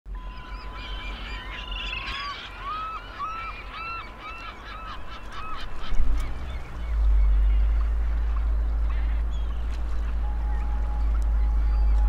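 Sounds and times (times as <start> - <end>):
geese honking: 0.1 - 12.0
low steady rumble: 0.2 - 12.0.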